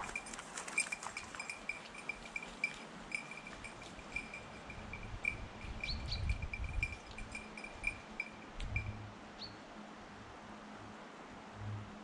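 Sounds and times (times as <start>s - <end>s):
small bell tinkling: 0.0s - 9.0s.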